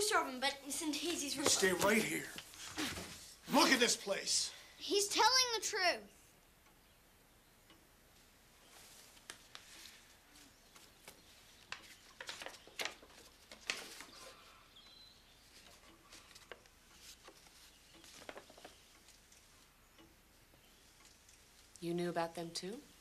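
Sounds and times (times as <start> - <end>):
soft clicks and rustles: 7.7 - 21.9.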